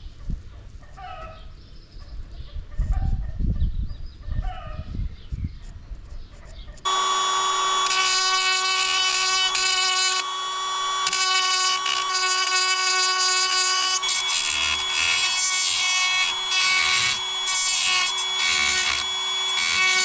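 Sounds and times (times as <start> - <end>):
power tool whining: 6.9 - 20.0.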